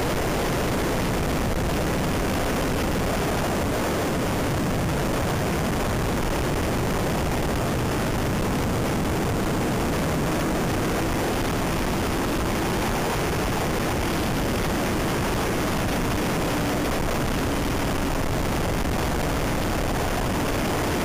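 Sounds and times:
wind buffeting microphone: 0:00.0 - 0:21.0
faint motorcycle engine hum: 0:06.6 - 0:21.0.

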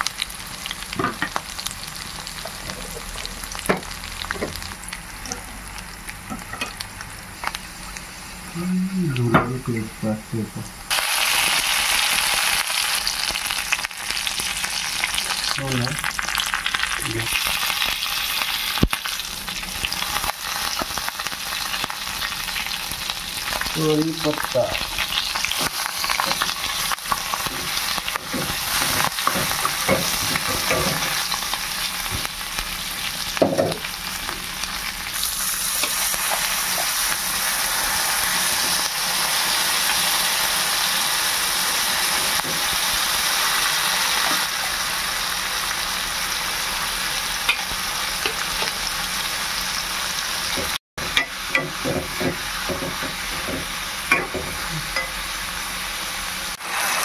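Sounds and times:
curry sizzling in a pan: 0:00.0 - 0:57.0
spatula scraping a pan: 0:27.3 - 0:31.3.

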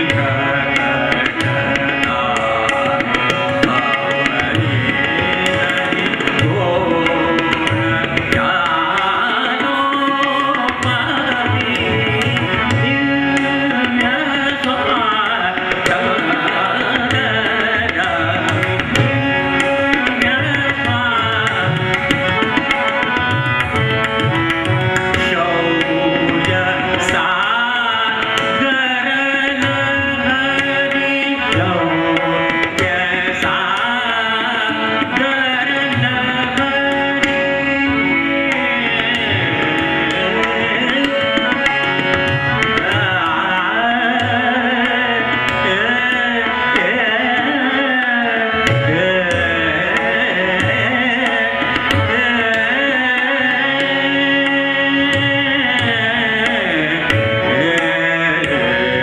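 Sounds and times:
harmonium: 0:00.0 - 0:59.0
man singing: 0:00.0 - 0:59.0
tabla rhythm: 0:00.0 - 0:59.0
tanpura drone: 0:00.0 - 0:59.0.

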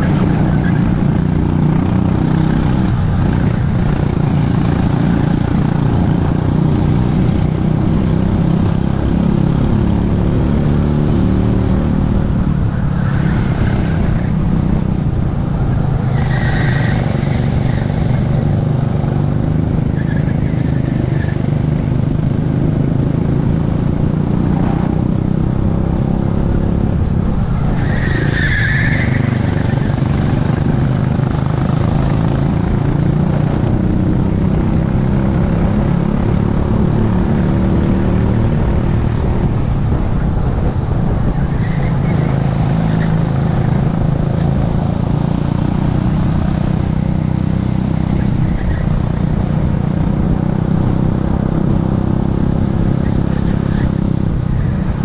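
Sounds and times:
kart engine running hard: 0:00.0 - 0:55.0
other karts running: 0:26.3 - 0:55.0
tyre squeals: 0:27.7 - 0:30.1.

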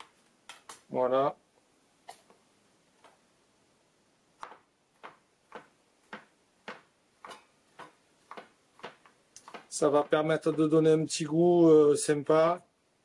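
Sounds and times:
knife chopping on cutting board: 0:04.4 - 0:10.7.

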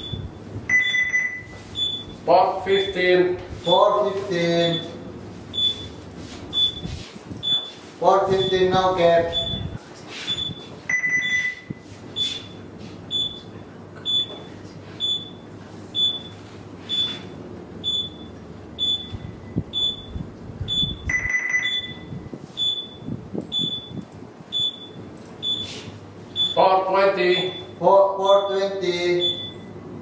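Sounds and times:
longer lower alarm tone: 0:00.0 - 0:02.1, 0:10.4 - 0:11.8, 0:20.7 - 0:24.0
short high alarm beeps: 0:00.0 - 0:02.2, 0:04.6 - 0:13.4, 0:14.1 - 0:14.4, 0:15.0 - 0:15.4, 0:16.0 - 0:26.7, 0:27.3 - 0:29.8
steady low hum: 0:00.0 - 0:30.0.

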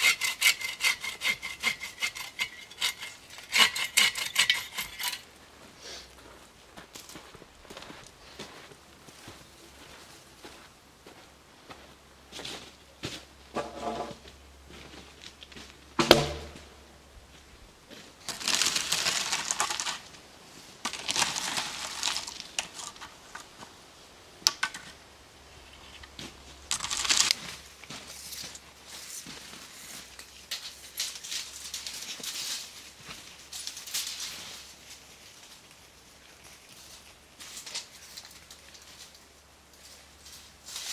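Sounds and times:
gravel crunching and scraping: 0:00.0 - 0:23.9, 0:24.8 - 0:40.9
heavy thud with ring: 0:16.0 - 0:16.7.

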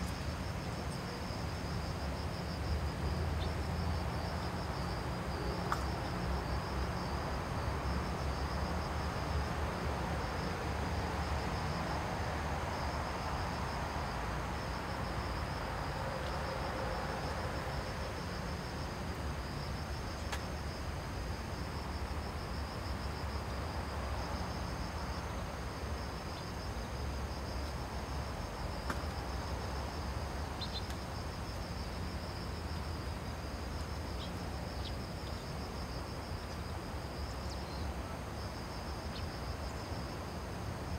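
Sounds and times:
insects trilling: 0:26.0 - 0:38.2.

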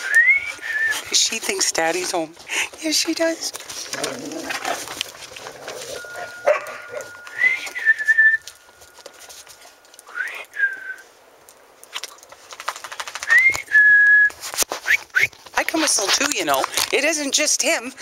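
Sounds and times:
person whistling: 0:00.0 - 0:01.1, 0:06.8 - 0:08.6, 0:10.1 - 0:11.0, 0:13.3 - 0:14.3.

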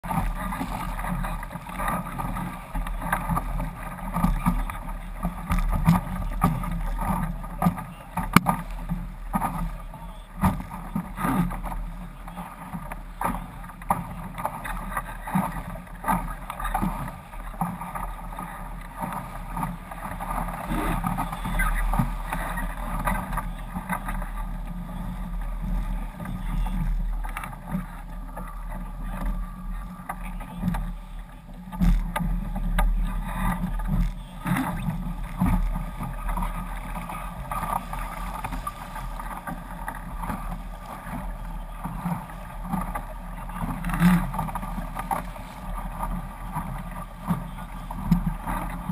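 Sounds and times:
water rushing past hull: 0:00.0 - 0:48.9
steady low rumble: 0:17.2 - 0:48.9.

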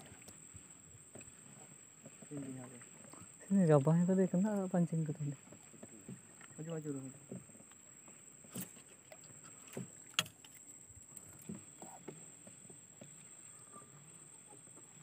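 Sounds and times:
knocks of gear in wooden boat: 0:05.4 - 0:13.2.

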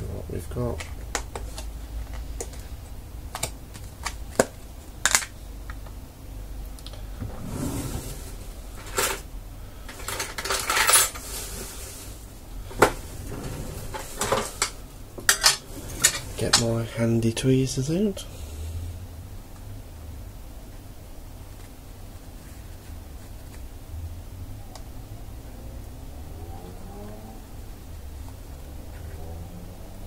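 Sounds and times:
plastic rustling scrapes: 0:07.3 - 0:09.3, 0:09.9 - 0:16.9.

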